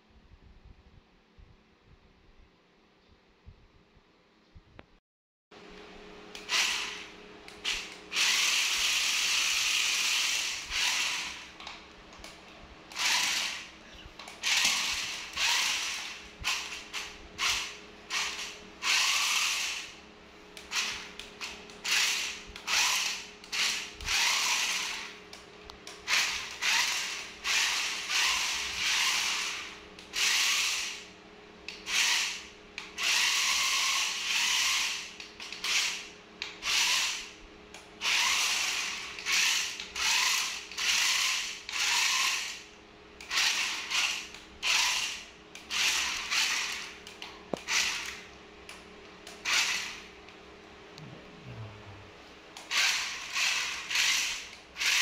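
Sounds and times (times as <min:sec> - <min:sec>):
toy car electric motors whirring: 0:06.4 - 0:11.7, 0:12.9 - 0:20.0, 0:20.6 - 0:25.2, 0:25.9 - 0:31.1, 0:31.7 - 0:48.3, 0:49.2 - 0:50.1, 0:52.6 - 0:55.0.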